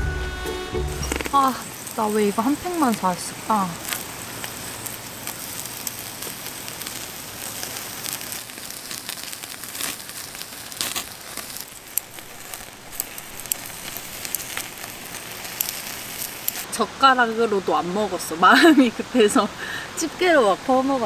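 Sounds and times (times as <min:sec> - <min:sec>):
beef sizzling on a grill: 0:00.1 - 0:21.0
fat popping and crackling: 0:00.6 - 0:16.7.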